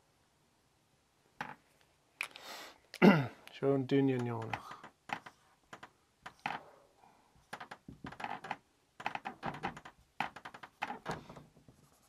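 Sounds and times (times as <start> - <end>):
marker tapping and scratching: 4.2 - 6.6, 7.4 - 12.0.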